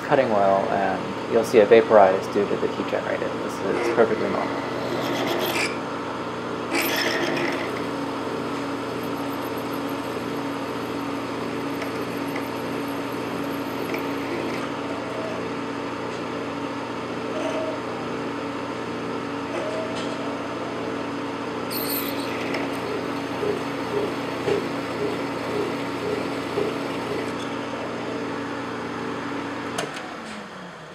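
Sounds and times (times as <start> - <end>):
lathe machine hum: 3.2 - 15.9, 21.9 - 29.6
drill cutting steel: 6.7 - 14.7, 21.7 - 27.4.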